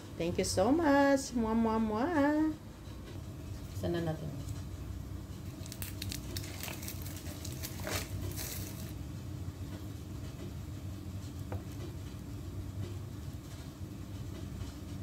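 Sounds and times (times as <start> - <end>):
steady low hum: 0.0 - 15.0
packaging crinkling and clicking: 5.5 - 9.0.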